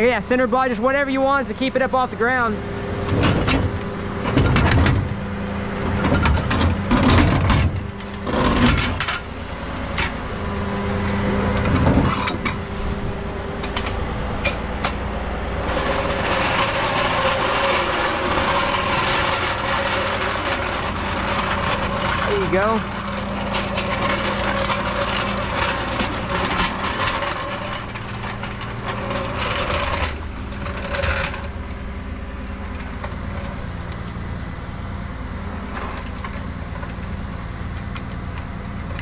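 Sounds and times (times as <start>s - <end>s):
floor jack rolling on concrete: 2.8s - 34.0s, 35.4s - 39.0s
truck engine idling: 9.0s - 30.8s.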